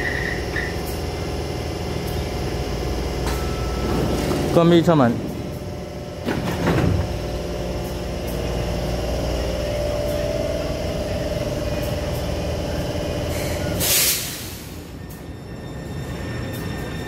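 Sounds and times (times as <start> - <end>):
train equipment humming: 0.0 - 17.0
air brakes hissing: 13.2 - 15.2.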